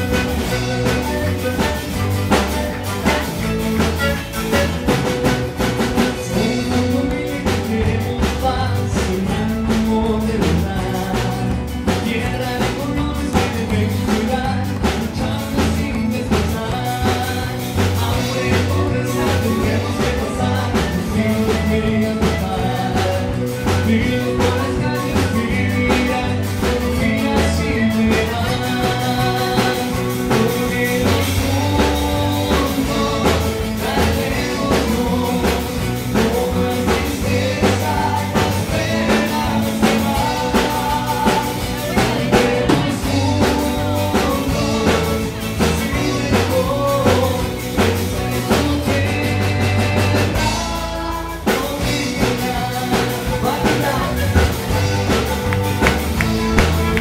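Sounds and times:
acoustic guitar: 0.0 - 57.0
drum kit beat: 0.0 - 57.0
strummed charango: 54.0 - 57.0.

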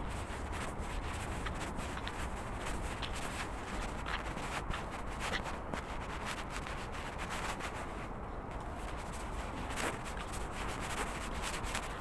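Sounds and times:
footsteps on pavement: 0.0 - 6.6
low steady rumble: 0.0 - 12.0.

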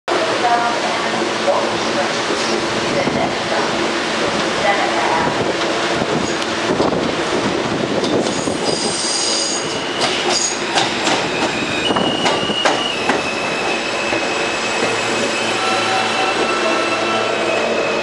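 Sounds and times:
train wheel squeal: 8.2 - 18.0.

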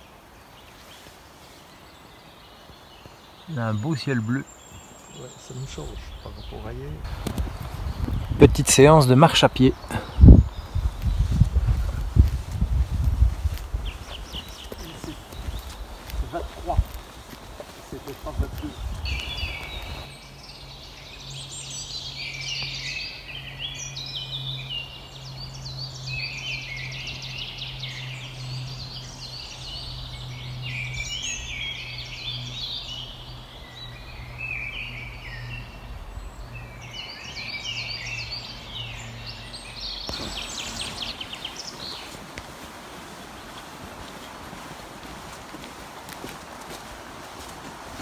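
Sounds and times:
songbirds singing: 0.0 - 48.0
even hiss: 40.1 - 43.6.

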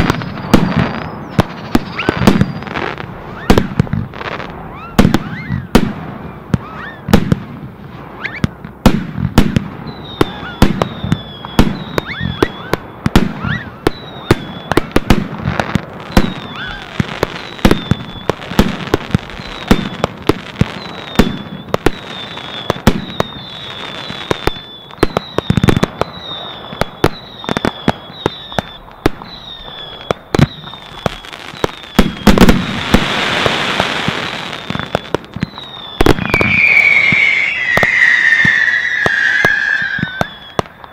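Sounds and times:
fireworks bangs: 0.0 - 40.9
hissing crackle of fireworks: 0.0 - 40.9
high falling chirps: 34.7 - 40.9.

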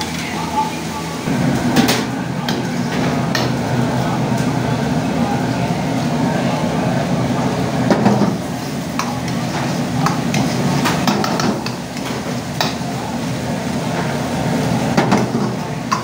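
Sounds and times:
food sizzling in a wok: 7.1 - 16.0.

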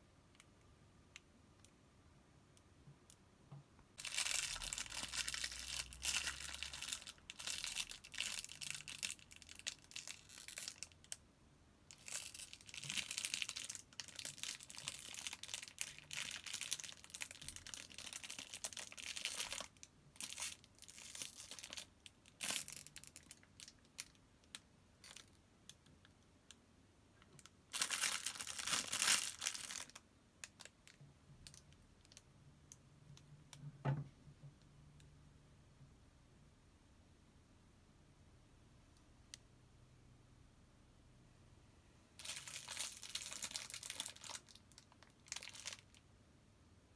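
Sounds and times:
plastic wrapping crinkling: 4.0 - 11.2, 11.9 - 25.8, 27.3 - 32.2, 42.2 - 46.0.

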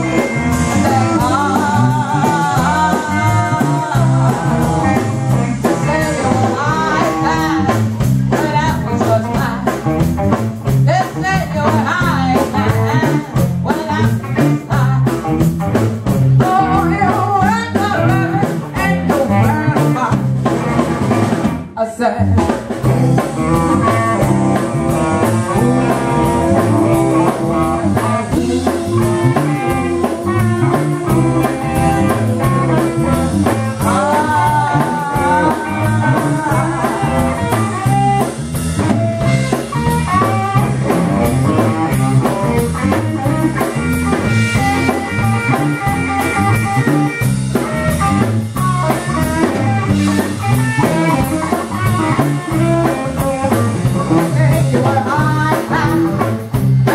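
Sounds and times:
woman singing into microphone: 0.0 - 9.6, 16.4 - 20.2, 25.5 - 38.0, 53.9 - 56.2
drum kit beat: 0.0 - 56.9
electric guitar: 0.0 - 56.9.

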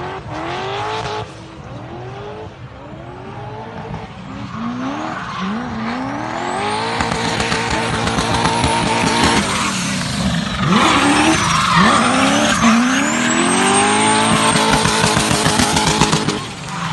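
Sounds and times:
car engine revving high: 0.0 - 16.9
tyres screeching: 4.6 - 16.9.

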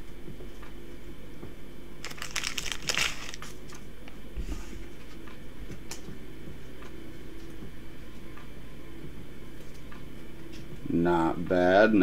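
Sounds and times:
thin plastic crinkling: 2.0 - 3.9.

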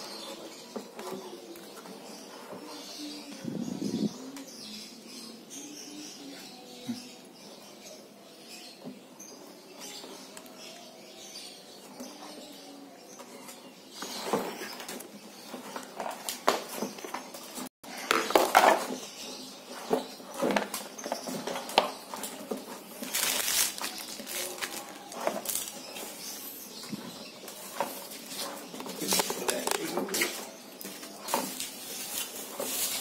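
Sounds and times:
plastic rustling and scraping: 0.0 - 4.5, 13.1 - 33.0.

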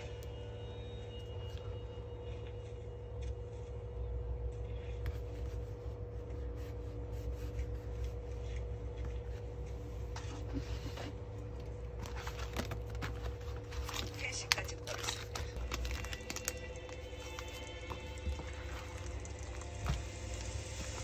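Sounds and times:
low hum: 0.0 - 21.0
paper rustling and scraping: 4.9 - 19.1.

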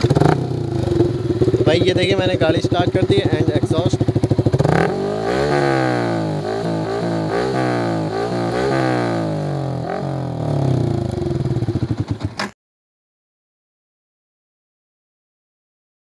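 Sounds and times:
motorcycle engine revving: 0.0 - 12.5.

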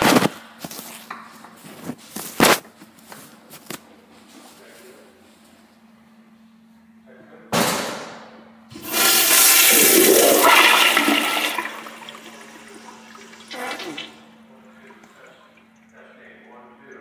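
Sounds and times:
toilet flushing: 8.7 - 17.0.

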